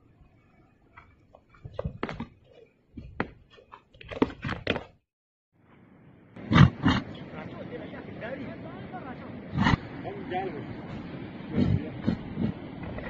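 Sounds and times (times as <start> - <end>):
yak horns knocking and scraping: 0.6 - 5.0, 10.8 - 13.0.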